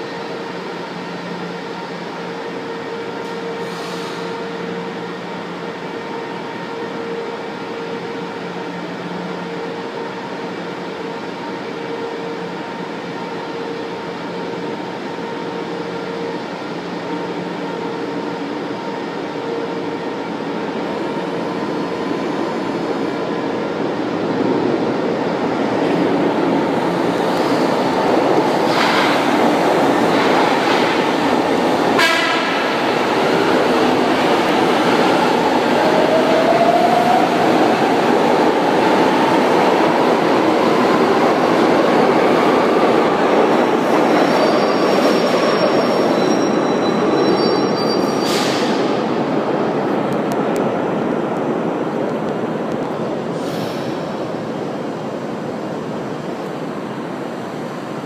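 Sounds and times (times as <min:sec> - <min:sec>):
train wheels rumbling on rail: 0:00.0 - 0:58.0
high wheel squeal: 0:44.0 - 0:48.7.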